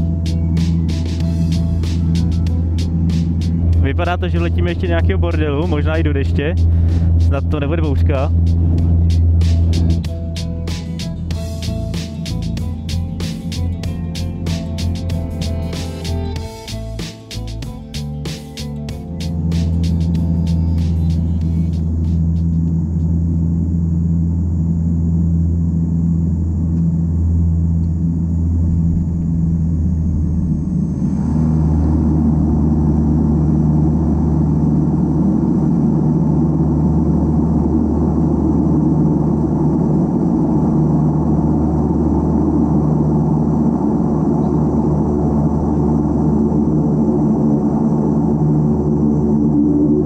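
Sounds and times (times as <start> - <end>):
faint high whine: 0.0 - 18.1, 18.7 - 50.0
turboprop cabin drone: 0.0 - 50.0.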